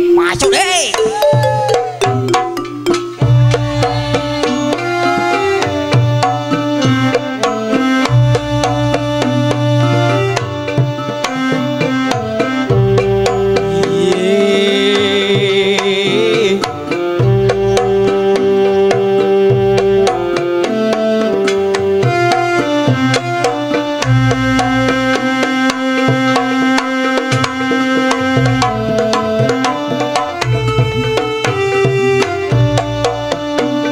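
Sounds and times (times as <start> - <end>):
hand-drum beats: 0.0 - 33.9
held melodic notes: 0.0 - 33.9
wavering high melody line: 0.2 - 7.0.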